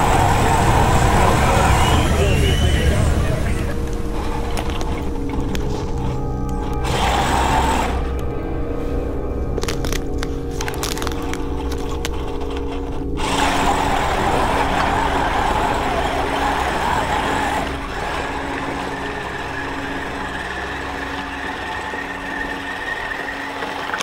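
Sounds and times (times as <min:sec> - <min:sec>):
loud rushing noise: 0:00.0 - 0:04.5
truck engine running hard: 0:00.0 - 0:08.2, 0:12.4 - 0:24.0
steady high whine: 0:00.0 - 0:24.0.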